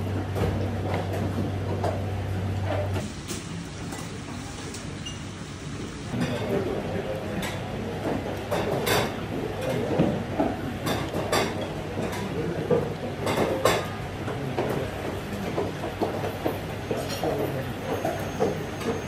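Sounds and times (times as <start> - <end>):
room hum: 0.0 - 13.6.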